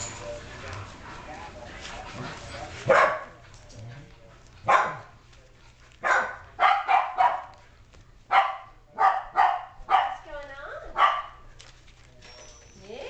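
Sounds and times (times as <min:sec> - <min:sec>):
dog barking: 0:02.8 - 0:03.4, 0:04.6 - 0:05.1, 0:06.0 - 0:07.6, 0:08.3 - 0:10.2, 0:11.0 - 0:11.4.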